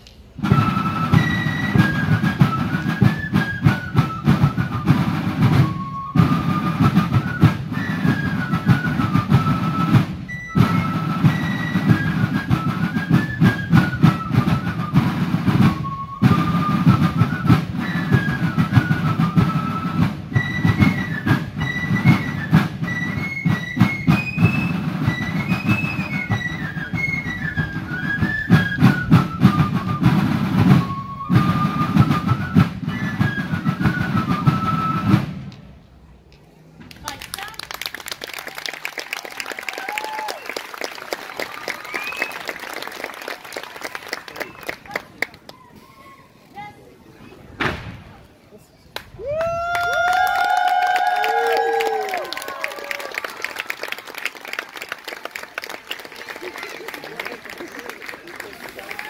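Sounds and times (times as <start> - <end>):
snare drum strokes and rolls: 0.3 - 35.8.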